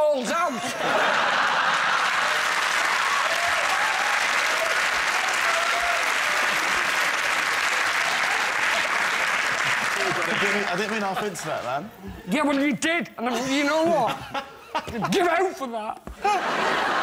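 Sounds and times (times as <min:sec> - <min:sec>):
audience applauding: 0:01.2 - 0:11.9.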